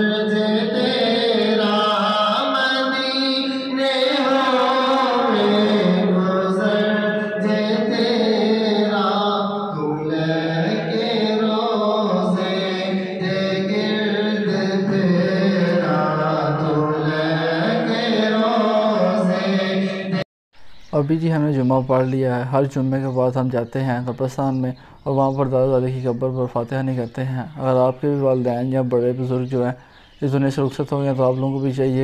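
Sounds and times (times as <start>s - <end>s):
men chanting: 0.0s - 20.3s.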